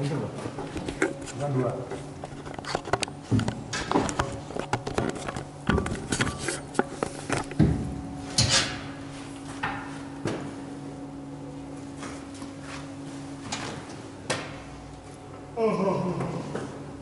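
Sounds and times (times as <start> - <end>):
steady low hum: 0.0 - 17.0
gear and camera handling clatter: 2.2 - 7.6.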